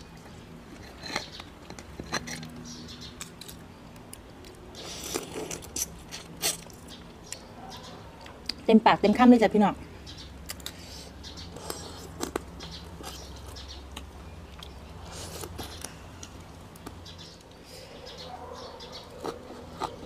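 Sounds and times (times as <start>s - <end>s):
person chewing food: 10.4s - 17.6s, 18.9s - 20.0s.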